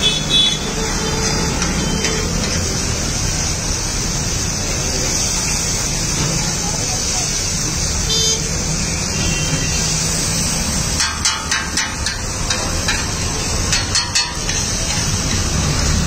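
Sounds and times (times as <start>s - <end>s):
metal spatula clanking on griddle: 1.2s - 2.6s, 10.9s - 16.0s
steady hiss: 2.2s - 16.0s.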